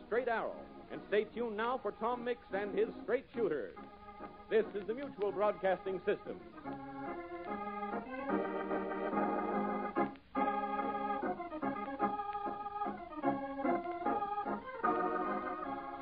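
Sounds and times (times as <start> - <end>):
organ playing sustained chords: 0.0 - 16.0.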